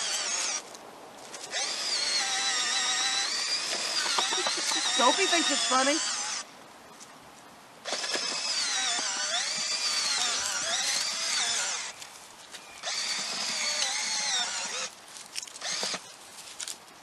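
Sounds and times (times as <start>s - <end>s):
cordless drill motor whine: 0.0s - 0.6s, 1.5s - 6.5s, 7.8s - 12.0s, 12.8s - 14.9s, 15.6s - 16.0s.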